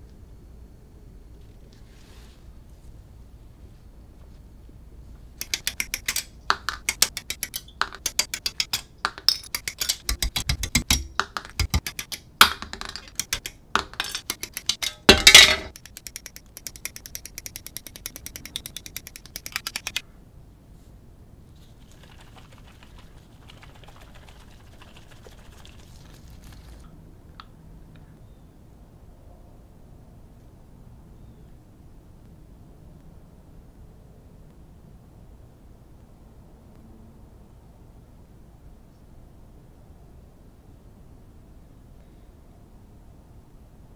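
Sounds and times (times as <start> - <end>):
side cutters snipping plastic parts: 5.4 - 15.1, 15.7 - 20.0.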